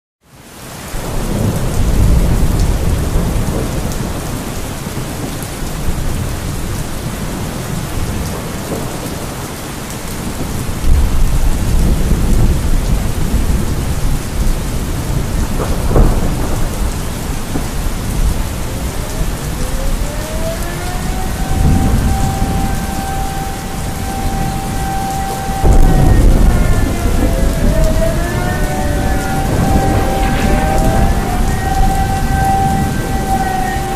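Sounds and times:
steady rain: 0:00.2 - 0:33.9
rolling thunder: 0:00.9 - 0:33.9
air raid siren: 0:14.2 - 0:33.9.

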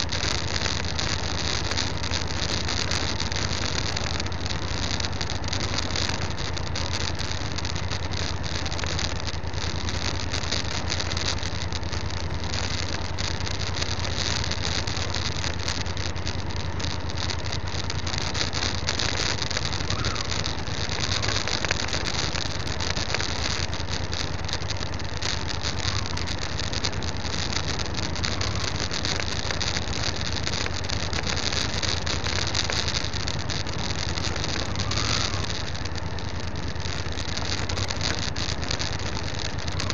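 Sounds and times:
motorcycle engine running: 0:00.0 - 0:39.9
wind and road noise: 0:00.0 - 0:39.9.

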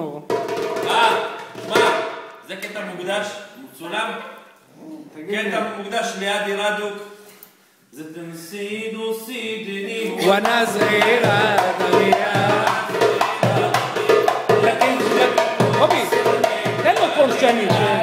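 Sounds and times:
goblet drum hand drumming: 0:00.3 - 0:02.2, 0:10.2 - 0:18.0
man singing wavering melody: 0:09.8 - 0:18.0.

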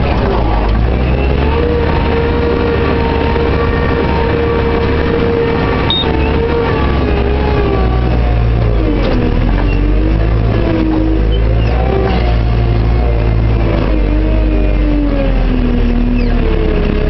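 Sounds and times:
engine rumbling with whine: 0:00.0 - 0:17.0.

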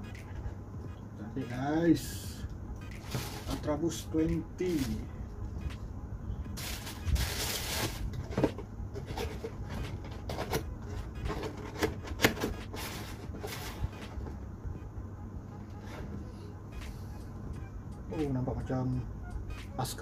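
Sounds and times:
tissue paper rustling: 0:06.6 - 0:08.1.

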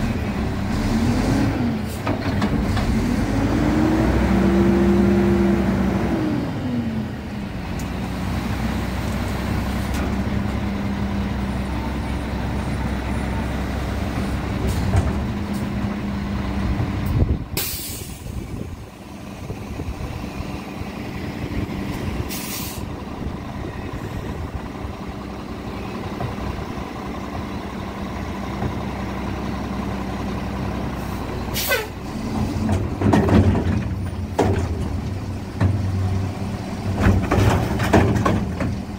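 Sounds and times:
garbage truck engine hum: 0:00.0 - 0:38.9
air brake hiss: 0:17.6 - 0:18.4, 0:22.3 - 0:22.9, 0:31.0 - 0:32.0.

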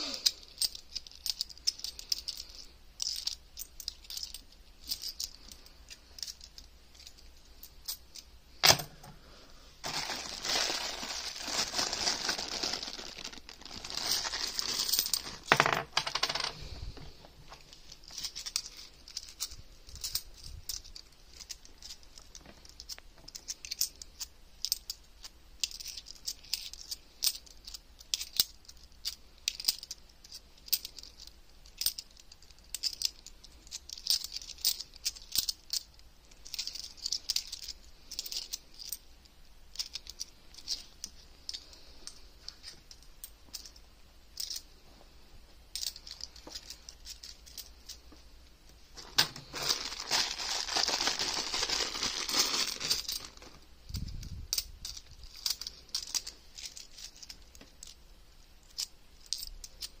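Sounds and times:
plastic bags rustling: 0:09.8 - 0:22.8, 0:48.8 - 0:54.0
coins clinking: 0:11.9 - 0:16.8, 0:49.0 - 0:58.0.

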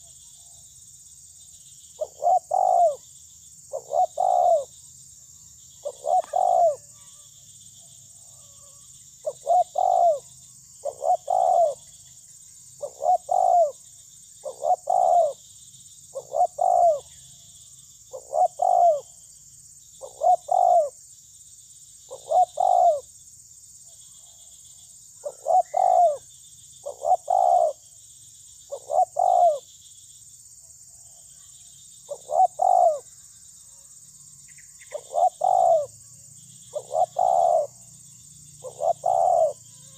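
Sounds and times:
dove cooing: 0:02.0 - 0:03.0, 0:03.7 - 0:04.7, 0:05.8 - 0:06.9, 0:09.2 - 0:10.2, 0:10.8 - 0:11.9, 0:12.8 - 0:13.8, 0:14.4 - 0:15.4, 0:16.1 - 0:17.1, 0:18.1 - 0:19.1, 0:20.0 - 0:21.0, 0:22.1 - 0:23.0, 0:25.2 - 0:27.8, 0:28.7 - 0:29.6, 0:32.1 - 0:33.1, 0:34.9 - 0:36.0, 0:36.7 - 0:37.8, 0:38.6 - 0:39.9.

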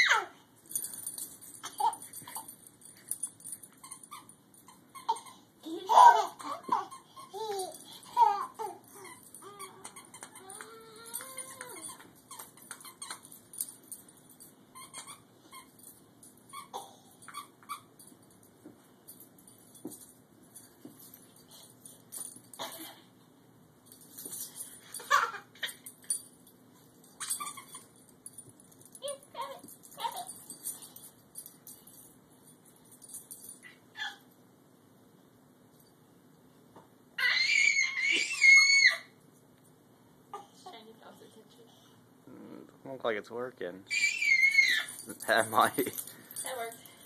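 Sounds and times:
baby squealing and giggling: 0:00.0 - 0:00.4, 0:03.9 - 0:13.2, 0:27.2 - 0:27.9, 0:33.9 - 0:34.2, 0:37.2 - 0:39.1, 0:43.9 - 0:45.1.

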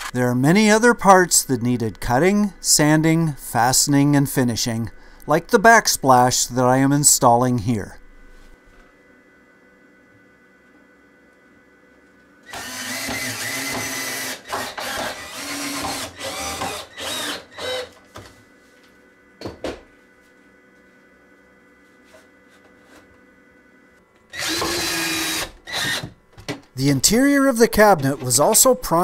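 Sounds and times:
cordless drill driving screws: 0:12.5 - 0:17.9, 0:24.3 - 0:26.1.

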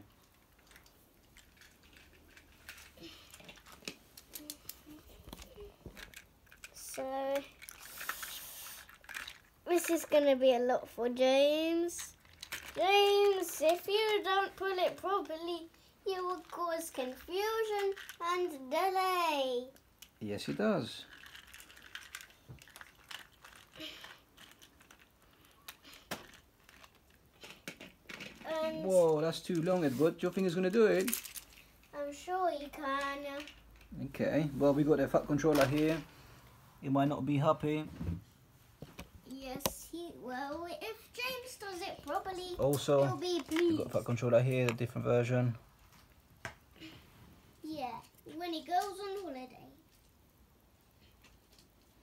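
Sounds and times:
plastic toy trains clicking: 0:00.6 - 0:10.6, 0:11.9 - 0:18.5, 0:21.1 - 0:28.6, 0:32.8 - 0:33.9.

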